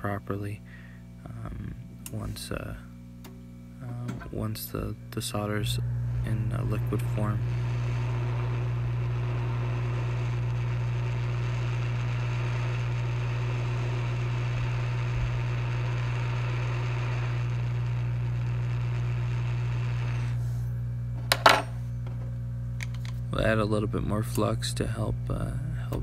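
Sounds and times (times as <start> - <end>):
hot air blower blowing: 3.8 - 21.9.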